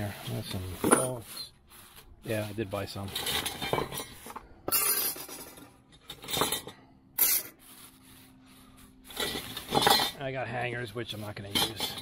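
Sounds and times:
metal brackets clinking: 3.1s - 7.6s.

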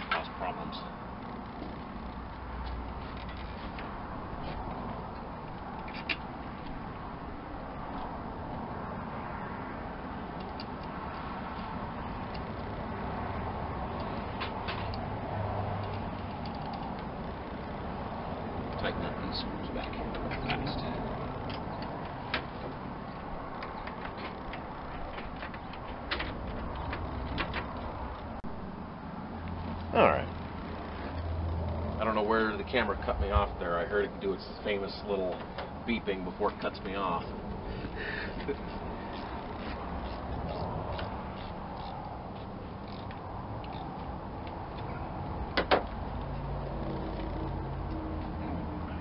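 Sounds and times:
light clicks and metallic knocks: 19.7s - 28.4s, 37.8s - 48.3s.

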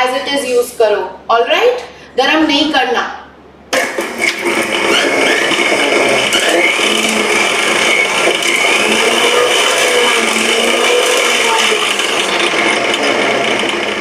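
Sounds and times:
mixer grinder blending: 3.8s - 14.0s.

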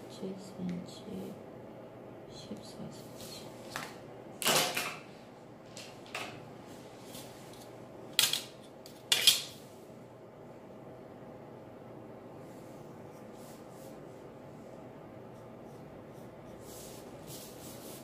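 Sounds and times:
plastic rulers clattering on table: 9.1s - 9.5s.

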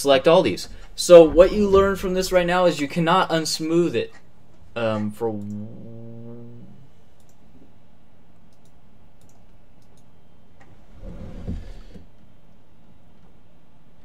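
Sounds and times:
steady low hiss: 0.0s - 14.0s
computer mouse clicks: 7.2s - 7.4s, 8.4s - 10.1s.

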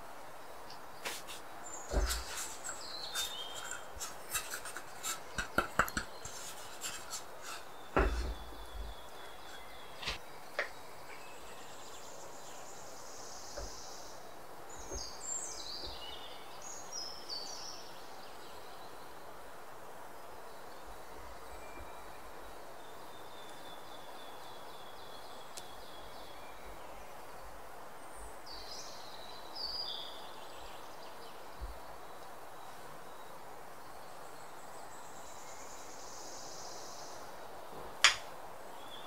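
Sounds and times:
metal muffin tin clinking: 1.9s - 8.4s.

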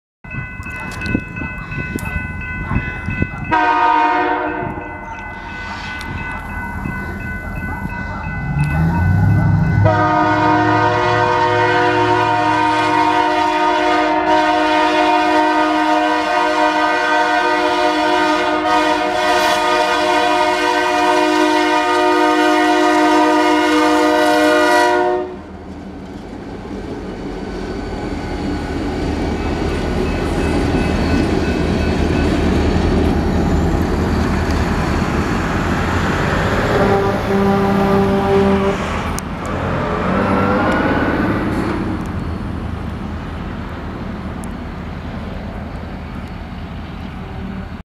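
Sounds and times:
crossing bell ringing: 0.2s - 12.2s, 28.4s - 37.2s
train wheels rumbling on rails: 0.3s - 47.8s
locomotive air horn blast: 3.5s - 4.8s, 9.0s - 25.5s, 36.4s - 39.0s.

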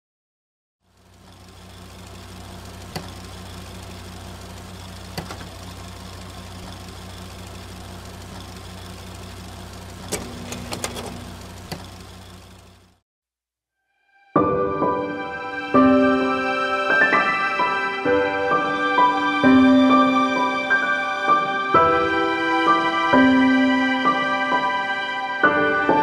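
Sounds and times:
low mechanical hum: 0.9s - 13.0s
sharp clicks: 2.9s - 3.2s, 10.0s - 12.0s.

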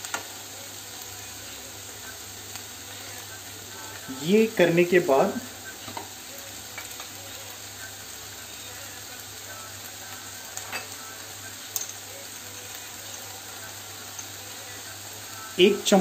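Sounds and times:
vegetables sizzling in butter: 0.0s - 16.0s.

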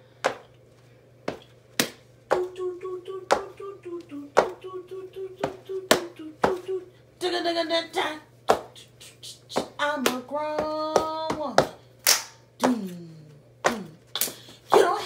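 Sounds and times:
person humming a tune: 2.3s - 11.6s, 12.6s - 14.1s.

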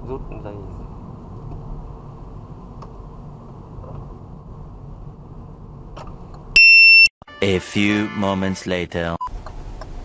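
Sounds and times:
muffled road and engine noise: 0.0s - 6.6s, 9.2s - 10.0s
high electronic beep: 6.6s - 7.1s.

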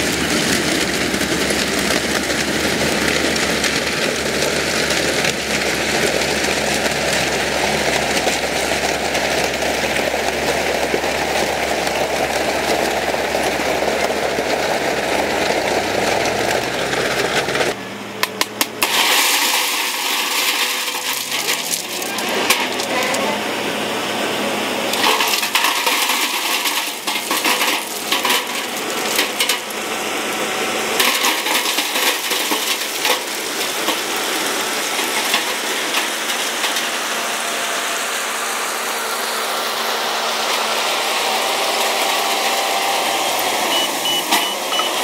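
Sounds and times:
heavy machinery engine rumbling: 0.0s - 45.0s
stones clattering and scraping: 18.7s - 23.4s, 24.9s - 29.9s, 31.0s - 37.0s
rock rattling: 24.9s - 29.9s.

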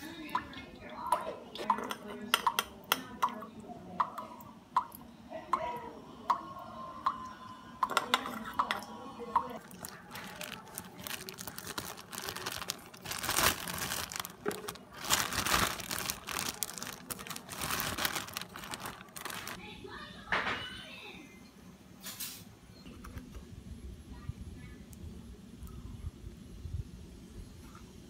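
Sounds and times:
water dripping into glass bowl: 0.2s - 5.7s, 6.3s - 9.7s
plastic bag crinkling: 9.6s - 19.6s.

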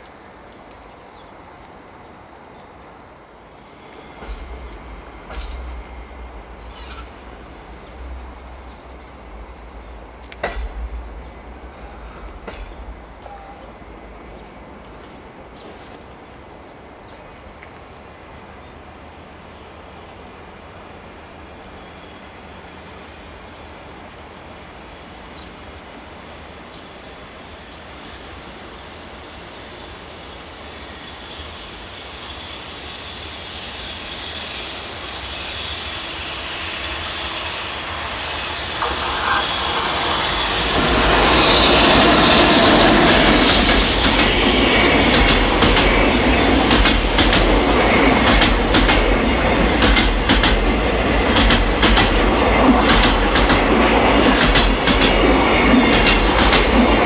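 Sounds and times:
freight train passing: 0.0s - 57.0s
wheels clacking over rail joints: 9.9s - 13.6s, 40.6s - 57.0s.

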